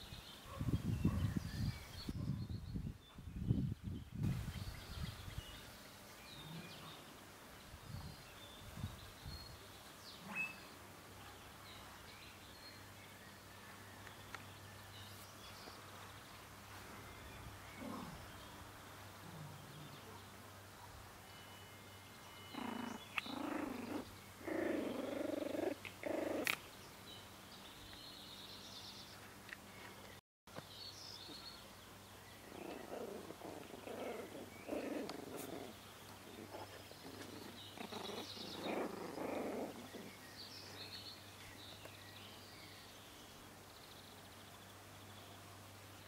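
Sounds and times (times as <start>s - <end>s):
puppies growling: 22.5s - 26.6s, 32.4s - 40.4s.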